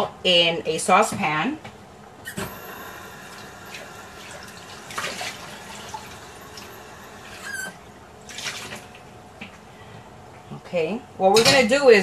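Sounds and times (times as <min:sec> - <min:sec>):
brief squeak: 0:02.2 - 0:02.8, 0:07.4 - 0:07.8.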